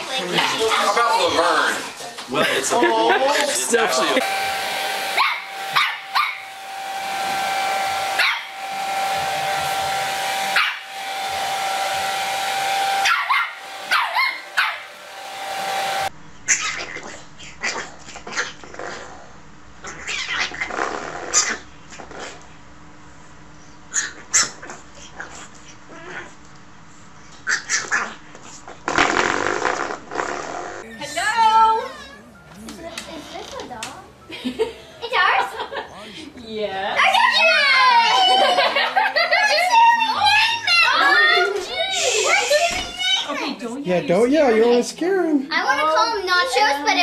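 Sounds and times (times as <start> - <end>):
hair dryer blowing: 3.4 - 16.1, 37.0 - 42.7
small dog barking: 5.1 - 6.5, 8.2 - 8.6, 10.5 - 10.9, 13.0 - 14.9, 16.5 - 18.5, 23.9 - 25.5.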